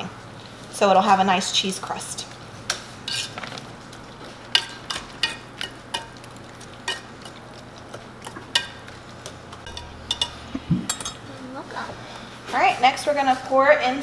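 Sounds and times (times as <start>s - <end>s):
whisk clinking against bowl: 6.8s - 11.2s.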